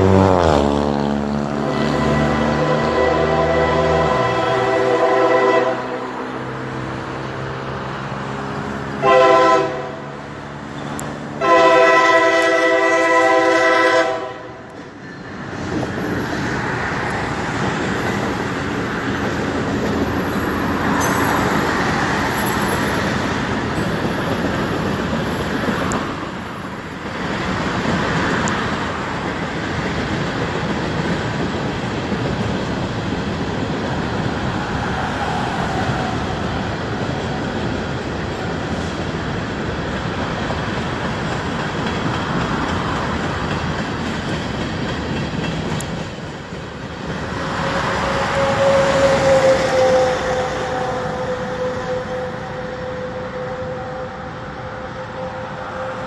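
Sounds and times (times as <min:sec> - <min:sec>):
freight train rolling past: 0:00.0 - 0:56.0
locomotive air horn blasts: 0:01.4 - 0:06.3, 0:09.0 - 0:10.2, 0:11.4 - 0:14.7, 0:47.4 - 0:56.0.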